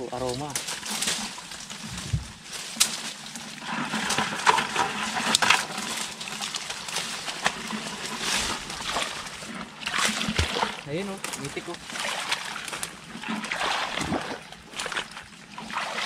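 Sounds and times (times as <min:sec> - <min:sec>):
leaves crunching underfoot: 0:00.0 - 0:13.0
twigs snapping: 0:00.2 - 0:03.4, 0:04.0 - 0:11.9.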